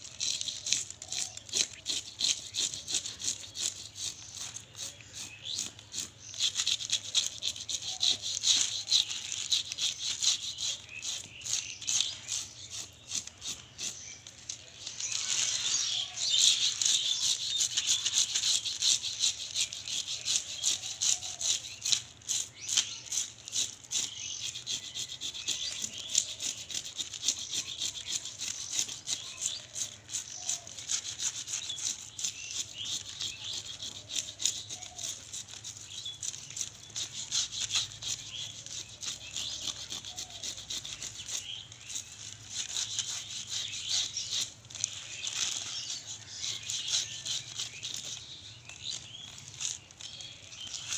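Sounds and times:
knife scraping fish scales: 0.0s - 50.9s.

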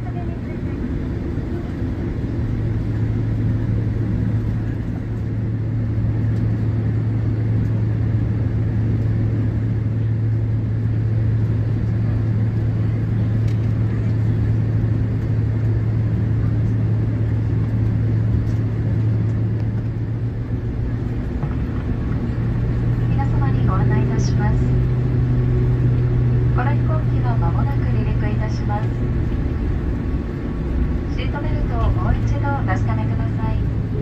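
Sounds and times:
airliner engine hum: 0.0s - 34.0s
cabin rumble: 0.0s - 34.0s.

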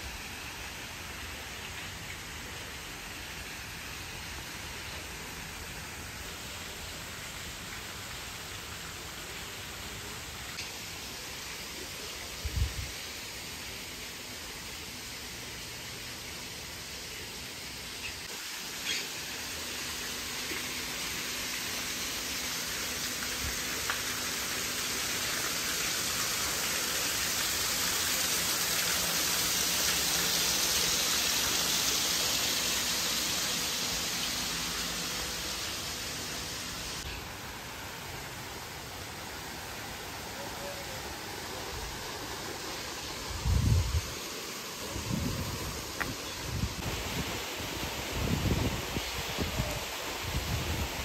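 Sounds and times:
running water rushing: 0.0s - 51.0s.

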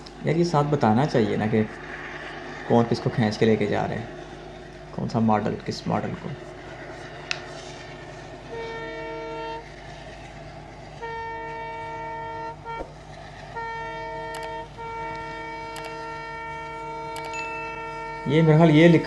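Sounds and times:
locomotive horn blasts: 8.4s - 9.9s, 10.9s - 19.0s.

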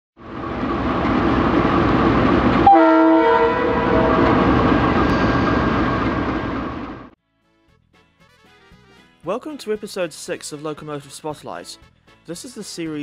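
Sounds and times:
locomotive engine and wheels rumbling: 0.2s - 7.2s
train horn blast: 2.6s - 4.5s.

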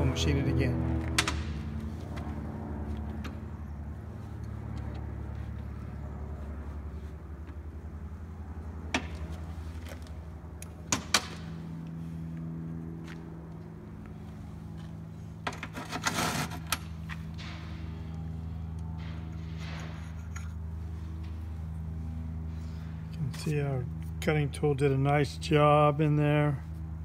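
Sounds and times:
low mechanical hum: 0.0s - 27.0s.

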